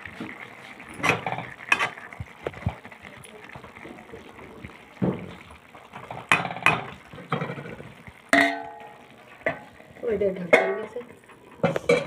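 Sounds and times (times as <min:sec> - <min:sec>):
ladle scraping in a pan: 0:00.7 - 0:02.8, 0:06.0 - 0:09.9
steel plate clanging: 0:08.3 - 0:09.6, 0:10.4 - 0:11.0.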